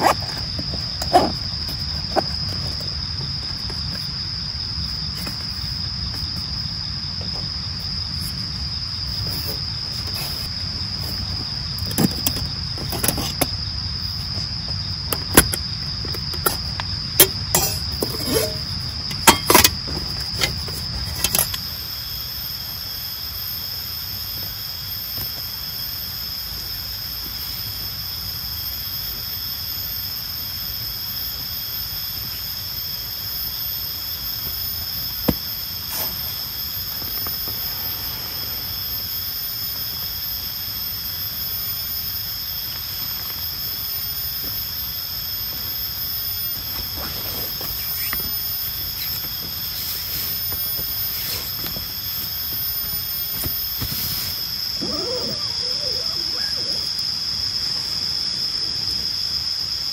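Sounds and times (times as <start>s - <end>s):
higher insect chorus: 0.0s - 59.9s
insects trilling: 0.0s - 59.9s
metal camp gear clinking: 15.1s - 21.6s.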